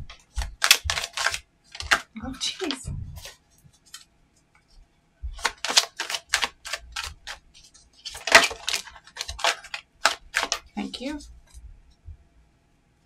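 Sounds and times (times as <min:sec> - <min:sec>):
cards being shuffled: 0:00.1 - 0:04.1, 0:05.3 - 0:11.1.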